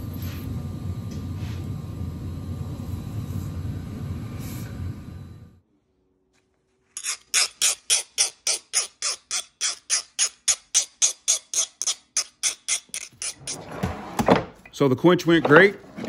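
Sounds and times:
file scraping steel blade: 7.0 - 13.9.

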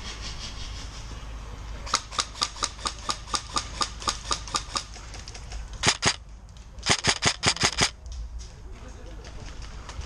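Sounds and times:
airsoft rifle shots: 1.9 - 4.9, 5.8 - 6.2, 6.8 - 8.0.

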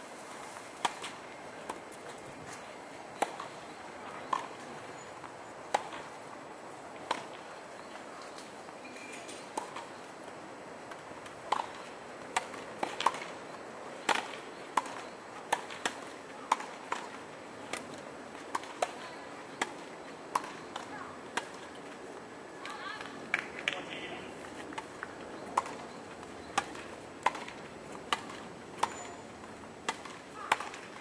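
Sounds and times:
tennis ball hit by rackets: 0.8 - 1.8, 3.2 - 3.6, 4.2 - 4.8, 5.7 - 6.1, 7.0 - 7.4, 9.5 - 9.9, 10.9 - 13.3, 14.0 - 19.0, 19.6 - 21.8, 24.7 - 29.2, 29.8 - 31.0
tennis ball bouncing on court: 3.2 - 4.8, 5.7 - 6.1, 10.9 - 13.3, 14.0 - 21.8, 24.6 - 29.2.

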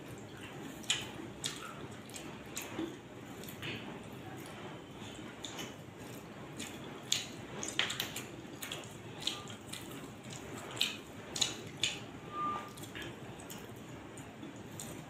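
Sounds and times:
man chewing wetly: 0.0 - 15.0
lip smacks: 6.6 - 12.0.

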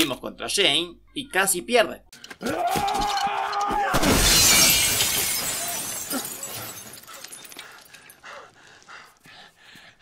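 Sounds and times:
window glass breaking: 3.9 - 7.6
heavy breathing: 6.6 - 10.0.

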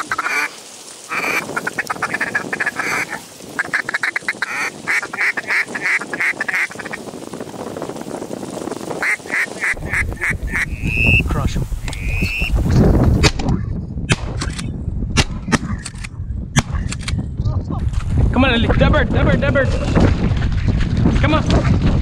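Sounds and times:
ducks quacking: 0.0 - 7.0, 9.0 - 12.5.

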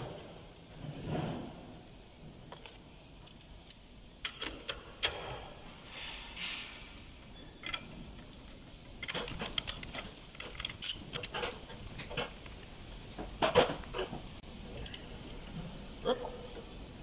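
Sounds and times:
metallic clicks and knocks: 7.5 - 15.4.

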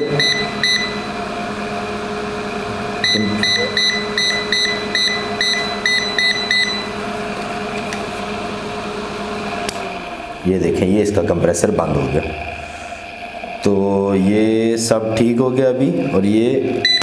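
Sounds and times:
short high buzzer beeps: 0.0 - 1.1, 3.0 - 7.0
steady hum: 0.0 - 17.0.

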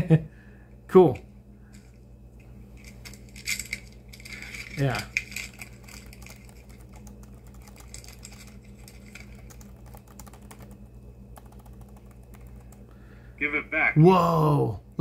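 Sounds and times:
steady low hum: 0.0 - 15.0
trading cards flicking clicks: 5.4 - 12.9.

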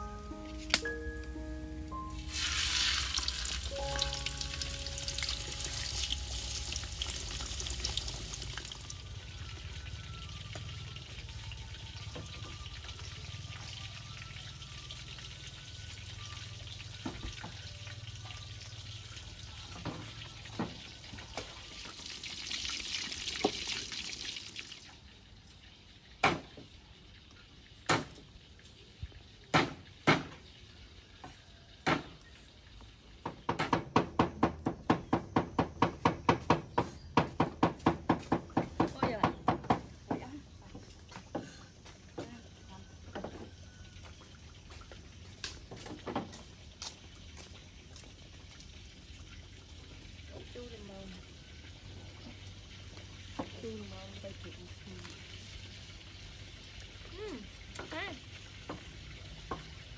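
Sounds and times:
food sizzling in a wok: 0.2 - 9.5, 11.9 - 24.8, 46.4 - 59.9.

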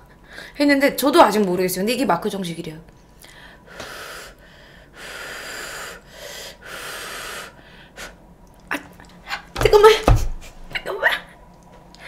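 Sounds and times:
person blowing on hot food: 5.0 - 8.2.

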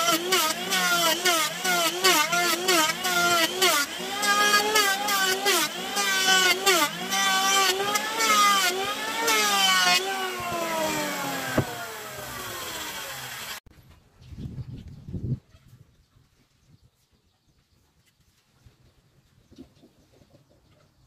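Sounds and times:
electric hand planer cutting wood: 0.0 - 13.7
motor winding down whine: 7.3 - 13.6.

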